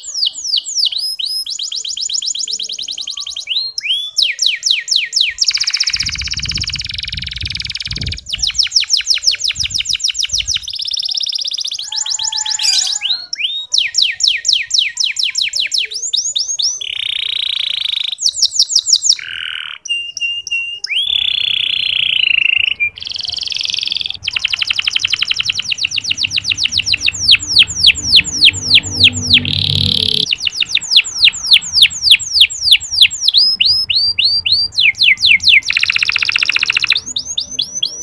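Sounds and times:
canary singing trills: 0.0s - 38.0s.

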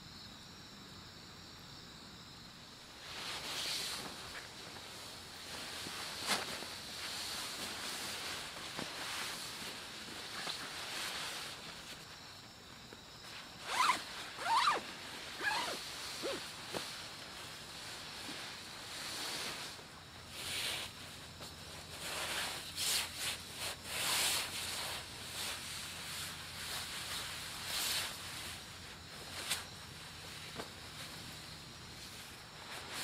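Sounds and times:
nylon fabric rustling: 2.9s - 33.0s
zipper pulled: 13.6s - 16.5s.

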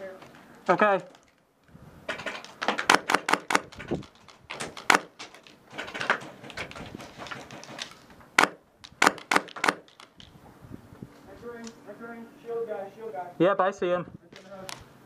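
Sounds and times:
airsoft gunfire: 2.6s - 3.9s, 4.5s - 5.2s, 8.4s - 10.0s.

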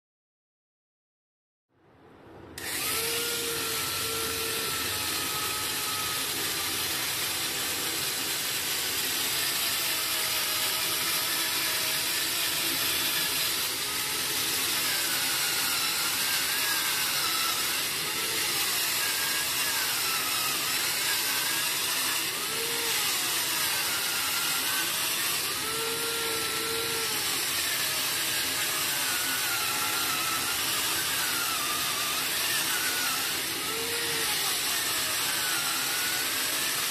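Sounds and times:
electric scraper motor whir: 2.6s - 36.9s.

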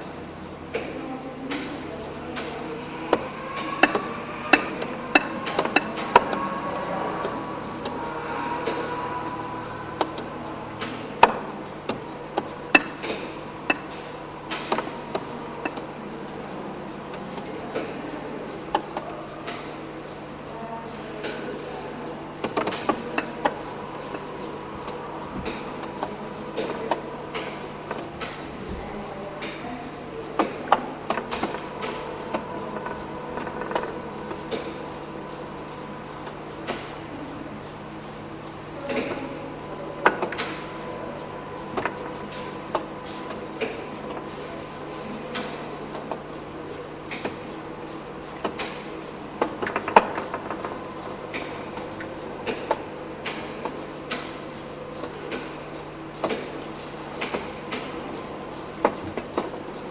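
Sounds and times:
faint motor whine: 0.0s - 59.9s
steady low hum: 0.0s - 59.9s
sharp clicks and knocks: 24.8s - 28.5s, 41.7s - 46.4s, 47.1s - 47.5s, 48.4s - 54.4s, 56.2s - 59.6s.

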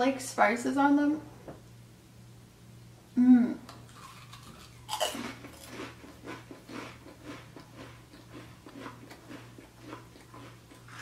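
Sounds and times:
crisp crunching in mouth: 3.9s - 11.0s.

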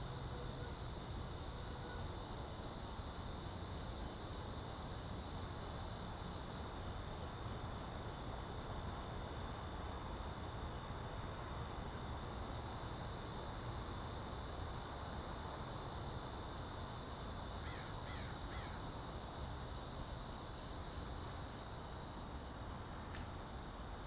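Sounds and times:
crow cawing: 17.6s - 18.8s.

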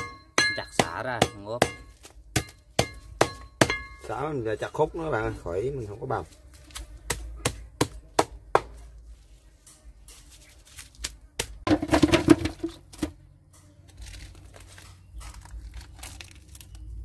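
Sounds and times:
cleaver chopping on wooden board: 6.7s - 8.8s
crinkling rustling handling noise: 13.8s - 17.0s.

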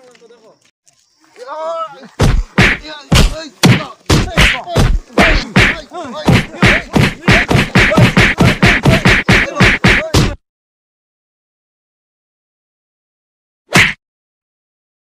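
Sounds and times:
punch and kick whacks: 2.2s - 10.4s, 13.7s - 14.0s.

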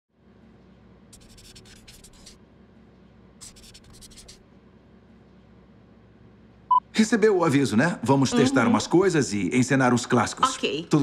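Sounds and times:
low steady hum: 0.2s - 11.0s
pen scratching on paper: 1.2s - 2.4s, 3.4s - 4.4s.

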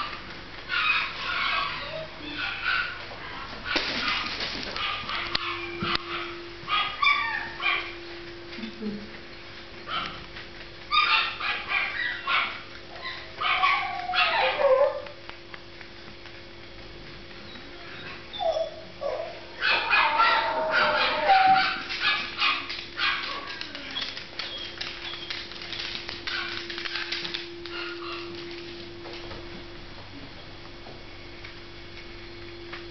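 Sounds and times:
small dog barking and yipping: 0.7s - 3.0s, 4.8s - 8.0s, 10.9s - 15.2s, 18.0s - 23.5s.

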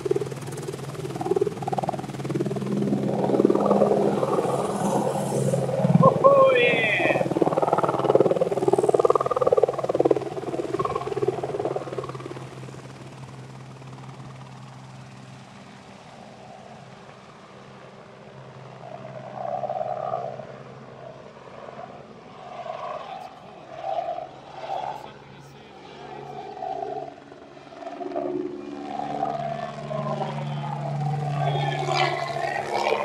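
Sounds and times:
helicopter flying away: 0.0s - 33.0s.

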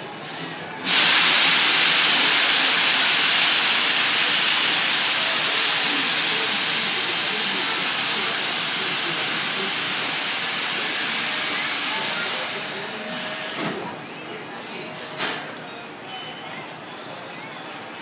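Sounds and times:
loud steady hiss: 0.8s - 13.6s.

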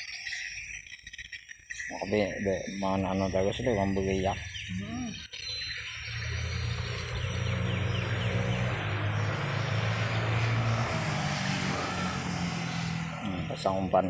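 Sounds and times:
vehicle engine running: 5.9s - 14.0s.

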